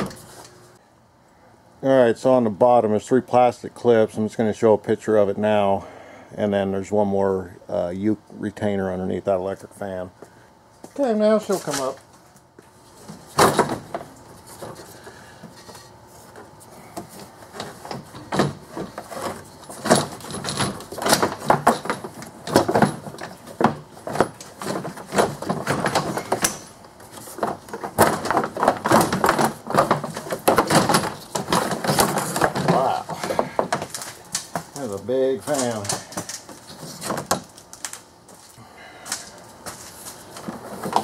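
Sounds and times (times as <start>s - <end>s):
knocking scraping and rattling parts: 11.0s - 41.0s.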